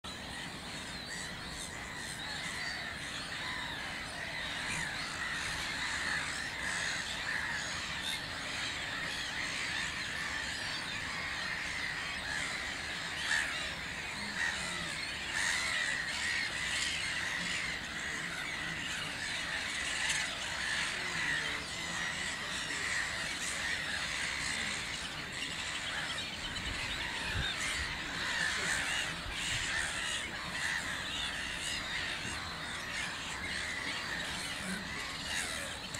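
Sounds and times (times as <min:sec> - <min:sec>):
gull colony calling: 0:00.2 - 0:35.9.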